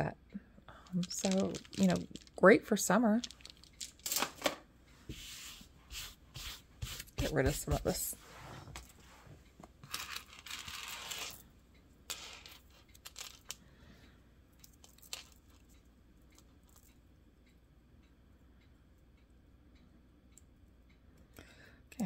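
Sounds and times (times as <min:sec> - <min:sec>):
bead necklace clicking: 0:00.8 - 0:02.5, 0:03.2 - 0:04.3, 0:12.1 - 0:13.6, 0:14.6 - 0:15.8.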